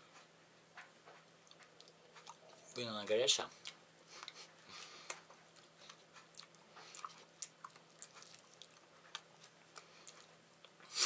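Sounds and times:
chewing mouth clicks and smacks: 1.4s - 2.5s, 5.0s - 10.8s.

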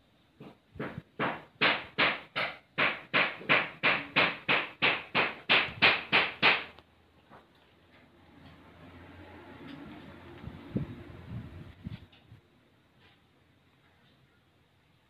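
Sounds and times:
sharp knocks: 0.4s - 6.8s.

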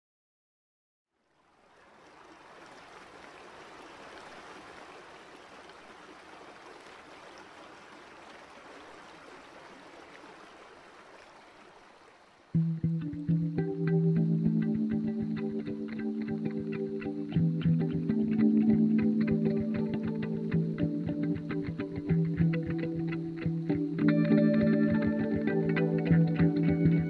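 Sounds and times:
flowing water rushing: 1.3s - 12.6s.

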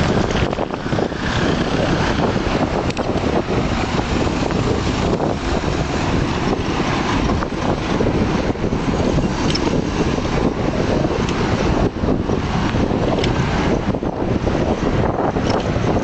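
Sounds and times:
street traffic: 0.0s - 16.0s
wind rumble on microphone: 0.0s - 16.0s.

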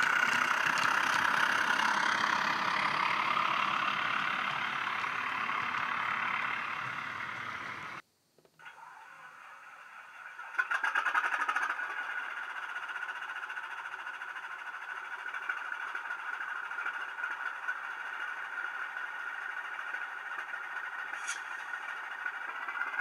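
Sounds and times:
diesel engine through small speaker: 0.0s - 8.0s, 8.6s - 23.0s.

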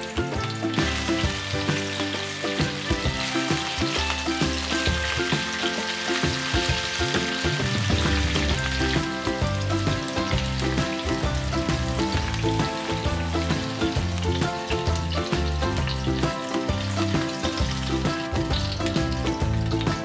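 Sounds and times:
background music with plucked bass: 0.0s - 20.0s
onion rings sizzling in oil: 0.0s - 20.0s.

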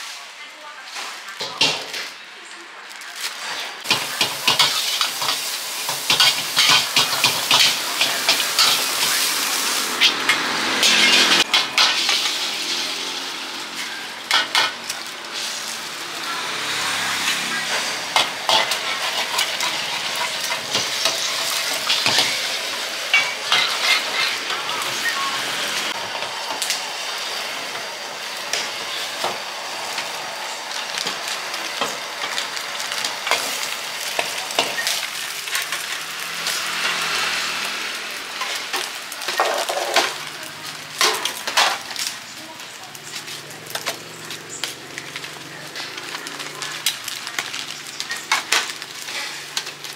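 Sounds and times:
metal spatula scraping wok: 3.4s - 14.7s, 16.6s - 25.1s
eggs sizzling in a wok: 3.7s - 49.9s.

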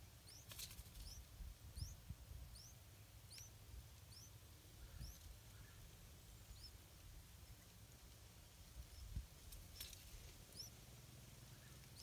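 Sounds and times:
high-pitched bird chirps: 1.8s - 3.5s.

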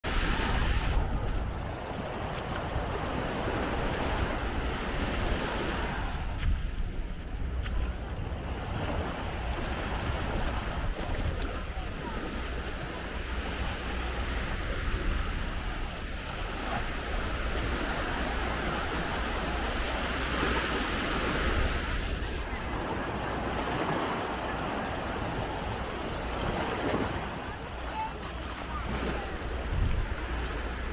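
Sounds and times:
sea surf washing onto shore: 0.0s - 30.9s
wind buffeting microphone: 28.7s - 30.9s.

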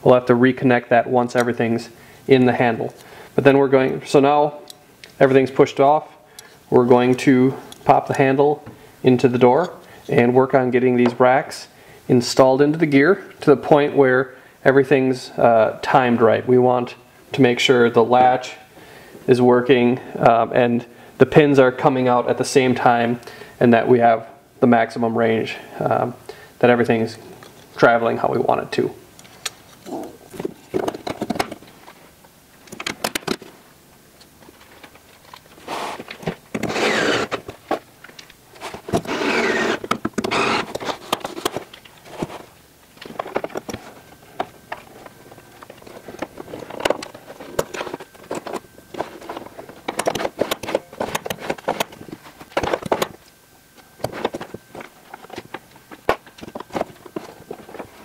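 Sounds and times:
metal scraping: 35.6s - 37.5s, 38.6s - 41.4s.

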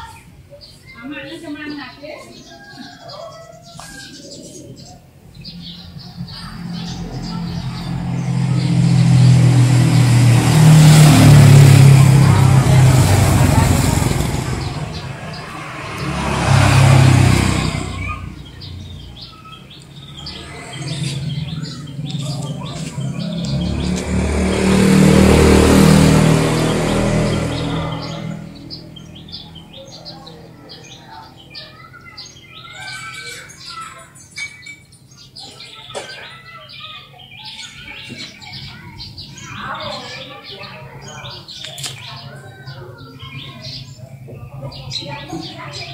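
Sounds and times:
small birds chirping: 0.0s - 45.9s
motor vehicle passing: 3.6s - 33.8s.

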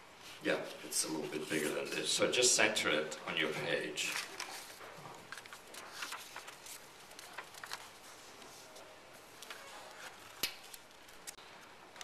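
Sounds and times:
paper rustling: 4.0s - 12.0s.

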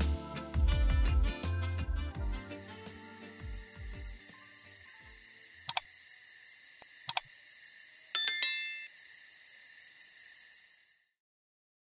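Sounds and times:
crickets chirring: 2.3s - 11.2s
mouse clicks: 5.6s - 5.9s, 7.1s - 7.3s
notification bell ding: 8.2s - 9.0s.

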